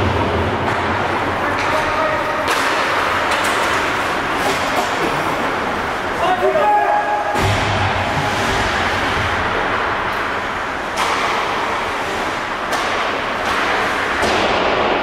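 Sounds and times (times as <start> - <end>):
sharp knocks of sticks and puck: 0.0 - 5.2, 10.1 - 15.0
faint rink hum: 0.0 - 15.0.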